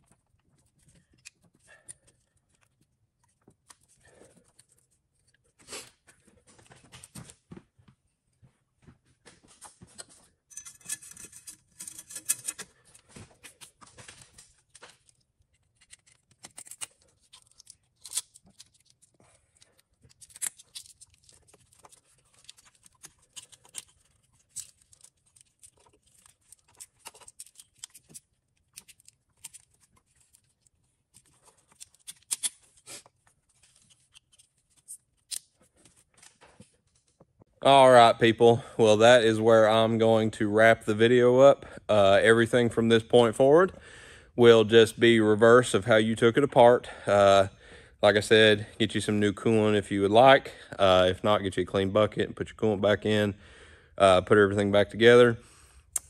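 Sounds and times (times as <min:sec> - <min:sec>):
hand tools clicking and rattling: 0:10.5 - 0:12.8.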